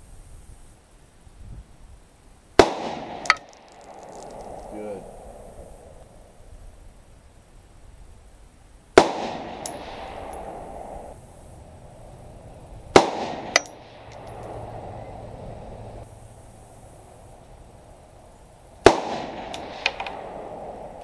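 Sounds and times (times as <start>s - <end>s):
rifle shots with echo: 2.6s - 5.0s, 9.0s - 10.8s, 12.9s - 14.6s, 18.8s - 21.0s
sharp metallic clink: 3.1s - 5.0s, 9.6s - 10.5s, 13.0s - 15.1s, 19.3s - 20.3s.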